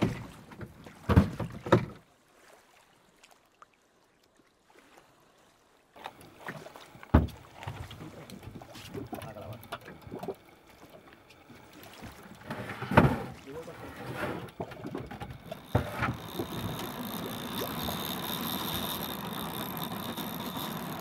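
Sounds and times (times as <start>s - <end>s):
dull knocks and thumps on boat: 0.0s - 2.0s, 7.1s - 9.9s, 11.9s - 21.0s
water noise: 0.0s - 21.0s.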